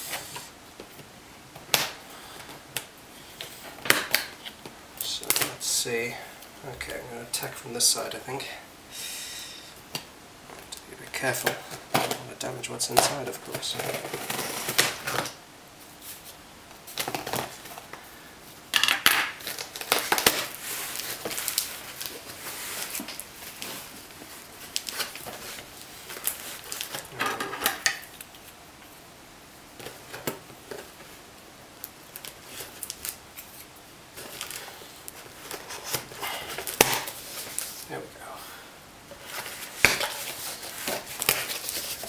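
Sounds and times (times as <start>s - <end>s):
packing tape tearing: 13.0s - 15.4s, 18.8s - 23.9s, 24.6s - 28.4s, 31.8s - 37.8s, 39.2s - 42.0s.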